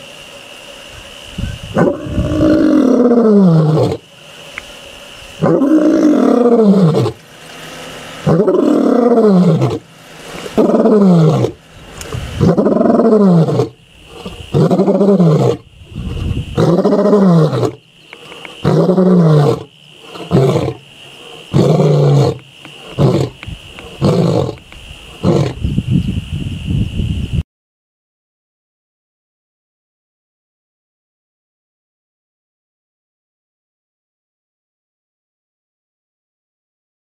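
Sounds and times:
lion roaring: 1.7s - 4.0s, 5.4s - 25.6s.

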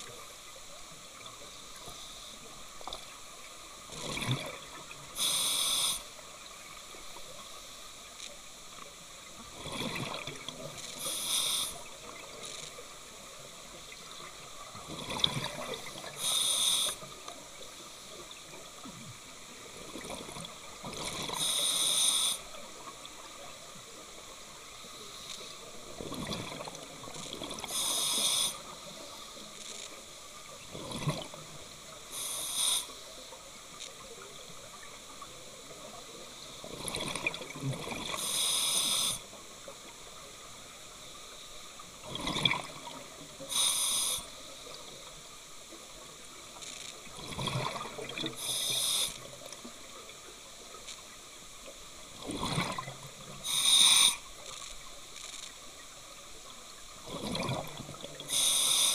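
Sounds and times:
regulator hiss: 5.1s - 6.2s, 10.8s - 11.9s, 16.0s - 17.2s, 21.3s - 22.6s, 27.6s - 29.6s, 32.1s - 33.2s, 38.2s - 39.3s, 43.4s - 45.0s, 48.4s - 49.4s, 53.4s - 54.3s, 58.2s - 58.9s
exhaled bubbles burbling: 9.6s - 10.4s, 42.0s - 43.0s, 47.2s - 48.4s, 52.2s - 53.0s, 57.0s - 58.3s.

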